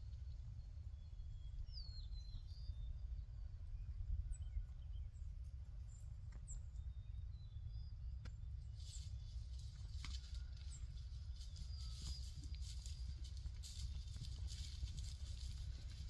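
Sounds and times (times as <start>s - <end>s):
wind rumble on microphone: 0.0s - 16.0s
faint high bird chirps: 5.9s - 16.0s.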